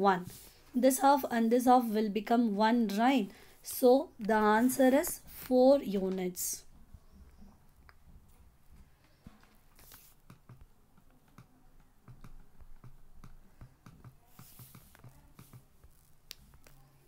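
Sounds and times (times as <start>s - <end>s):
fingers tapping phone screen: 8.8s - 17.0s.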